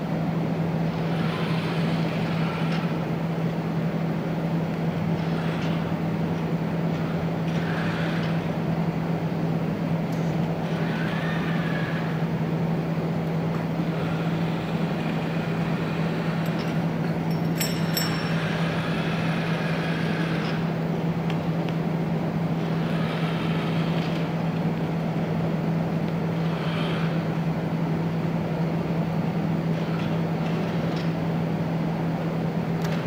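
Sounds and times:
low machine hum: 0.0s - 33.0s
robot arm joints whining: 5.1s - 5.9s, 6.9s - 8.5s, 10.2s - 12.2s, 13.6s - 20.7s.

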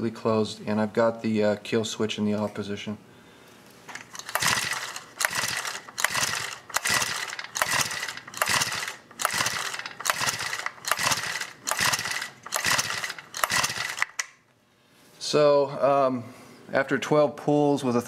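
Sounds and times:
engine cranking without firing: 3.9s - 14.4s
recoil starter cord pulls: 3.9s - 14.4s.

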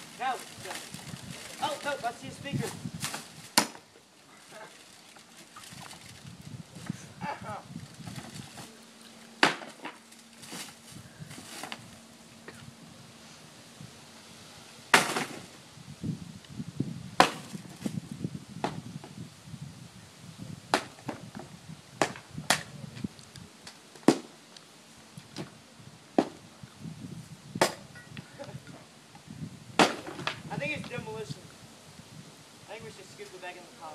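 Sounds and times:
debris crunching: 0.0s - 11.9s
axe chopping wooden panels: 3.5s - 3.8s, 9.4s - 10.0s, 15.0s - 15.4s, 17.2s - 17.6s, 29.8s - 30.4s.

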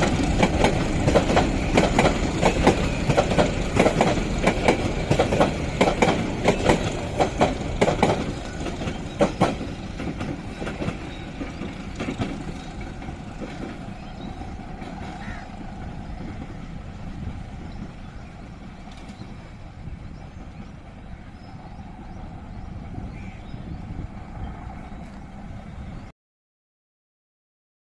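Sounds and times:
train wheels clattering over rail joints: 0.0s - 19.5s
train rumbling: 0.0s - 26.1s.

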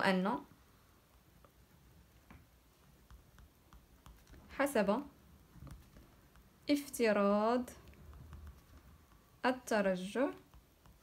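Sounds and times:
pen writing on paper: 3.0s - 4.5s, 7.8s - 9.4s.

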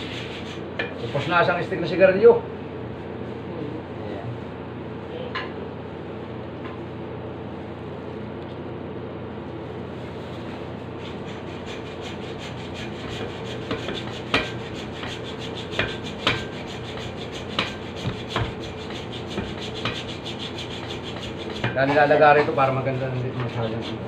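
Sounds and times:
hand saw rasping: 11.0s - 24.0s.

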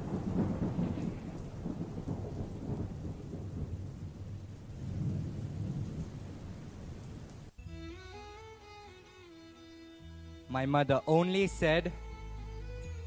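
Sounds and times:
low rolling thunder: 0.0s - 7.5s
rain: 0.0s - 8.4s.

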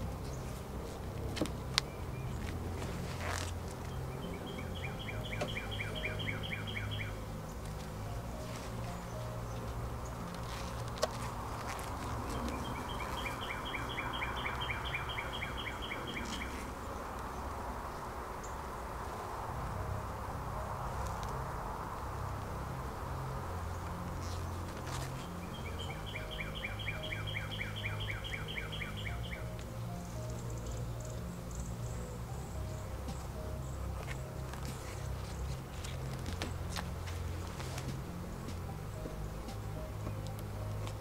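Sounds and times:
bees humming: 0.0s - 41.0s
bird trilling: 4.2s - 7.6s, 12.2s - 16.8s, 25.3s - 29.6s.

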